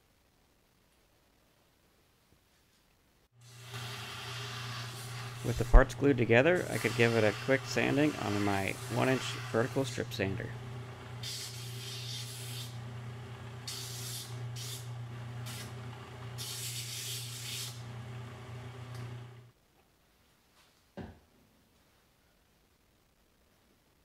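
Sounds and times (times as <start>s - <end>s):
sanding hiss: 3.4s - 10.6s, 11.2s - 12.8s, 13.6s - 15.8s, 16.4s - 17.8s
sander motor humming: 3.4s - 19.5s.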